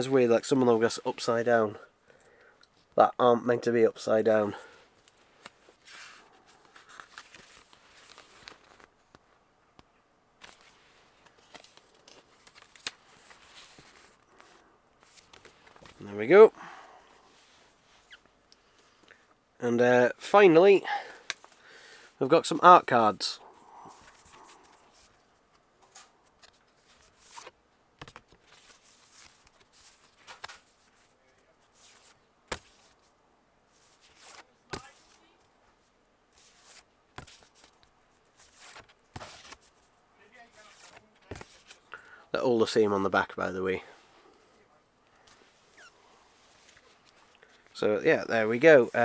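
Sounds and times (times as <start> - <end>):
paper and card rustling: 4.9 - 9.3, 10.4 - 16.1, 23.8 - 33.1, 33.7 - 35.4, 36.3 - 41.9, 45.2 - 47.7.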